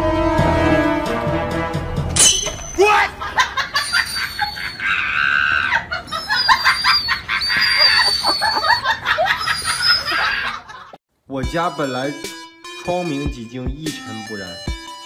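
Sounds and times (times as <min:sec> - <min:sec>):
dog yowling and screaming: 0:04.2 - 0:10.6
woman shrieking: 0:04.6 - 0:06.7, 0:07.3 - 0:08.8, 0:09.5 - 0:10.7.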